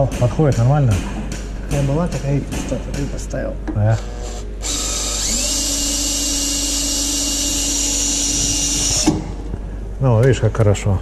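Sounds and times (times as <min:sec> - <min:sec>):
electric drill whining: 0:04.0 - 0:09.4.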